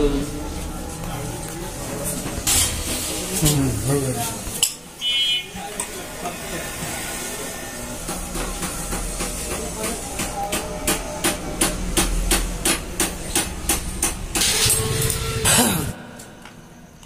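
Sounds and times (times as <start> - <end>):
metal scraping: 14.3 - 15.9.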